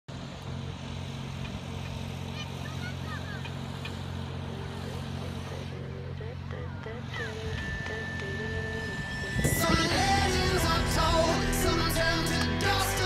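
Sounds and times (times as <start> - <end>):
low engine hum: 0.1 - 13.0
birds calling: 1.3 - 10.4.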